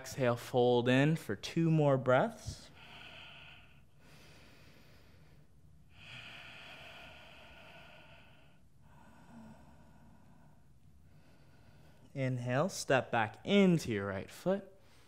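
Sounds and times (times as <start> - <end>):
man breathing slowly: 2.5 - 12.2, 14.8 - 15.0.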